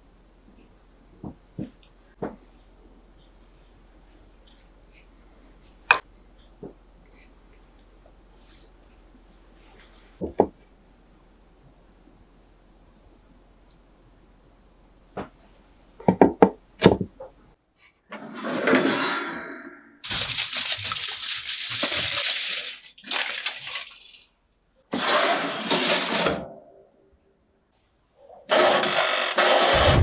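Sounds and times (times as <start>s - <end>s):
aluminium foil crinkling: 20.0s - 24.3s.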